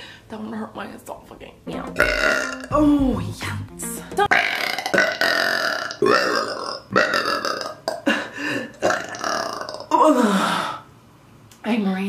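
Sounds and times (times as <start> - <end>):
woman burping loudly: 1.8 - 2.8, 4.2 - 10.2.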